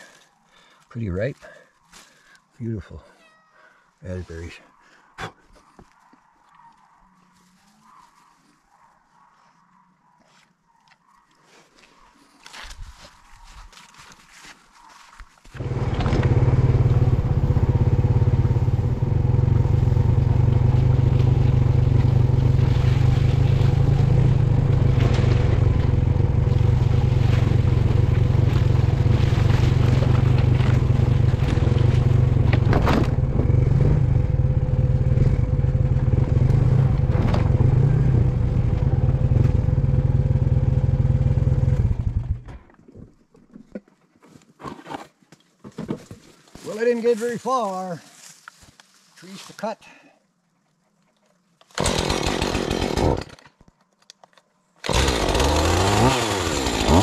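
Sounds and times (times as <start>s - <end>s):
atv engine running: 15.5s - 42.6s, 54.8s - 57.0s.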